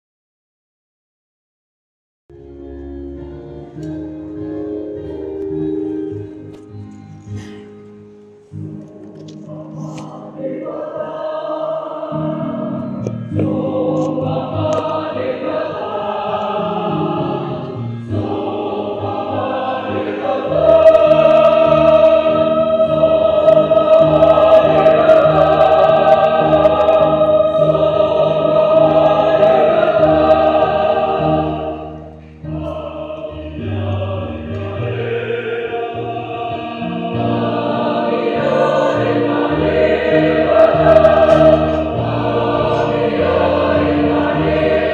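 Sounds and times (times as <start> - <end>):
church choir singing a hymn: 3.1 - 7.8, 8.5 - 44.9.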